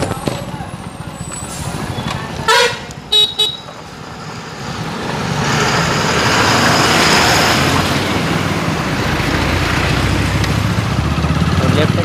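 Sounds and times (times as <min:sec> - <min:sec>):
traffic noise: 0:00.0 - 0:12.0
vehicle horn honking: 0:01.9 - 0:03.8.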